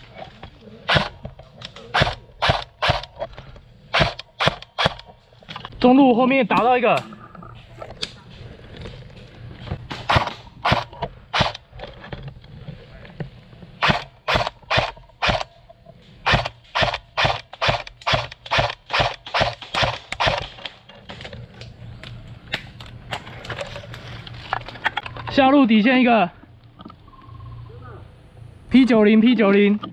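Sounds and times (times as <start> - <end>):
airsoft rifle firing: 0.8 - 3.2, 3.9 - 5.1, 9.9 - 11.7, 13.8 - 15.6, 16.2 - 20.8.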